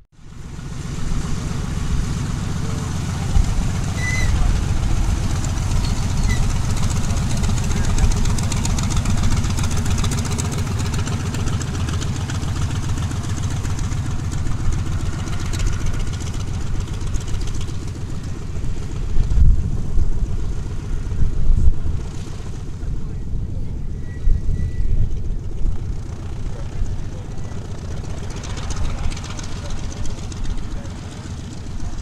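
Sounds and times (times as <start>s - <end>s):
low rumbles: 0.2s - 32.0s
radial aircraft engine droning: 0.2s - 32.0s.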